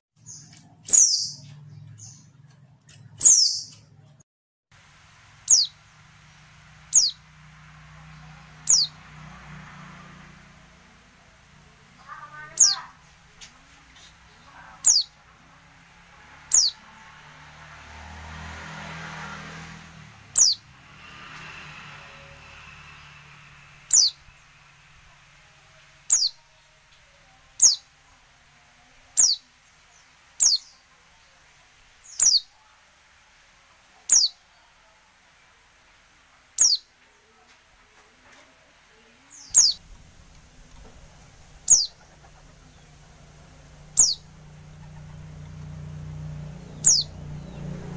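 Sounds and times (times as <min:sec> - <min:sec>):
thin high bird calls: 0:00.2 - 0:02.5, 0:03.1 - 0:03.9, 0:05.4 - 0:05.8, 0:06.9 - 0:07.3, 0:08.6 - 0:09.0, 0:12.0 - 0:13.1, 0:14.4 - 0:15.2, 0:16.5 - 0:16.8, 0:23.9 - 0:24.4, 0:26.1 - 0:26.4, 0:29.2 - 0:29.5, 0:32.0 - 0:32.5, 0:36.6 - 0:36.9, 0:39.3 - 0:43.2, 0:43.8 - 0:45.7, 0:46.7 - 0:47.6.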